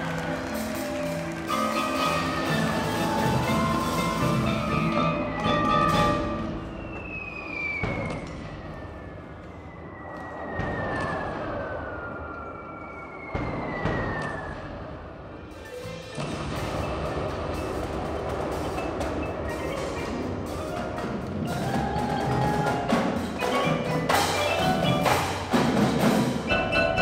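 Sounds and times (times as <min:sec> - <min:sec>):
mallet percussion chords: 0:00.0 - 0:06.6, 0:15.6 - 0:27.0
long falling whistles: 0:03.6 - 0:14.9.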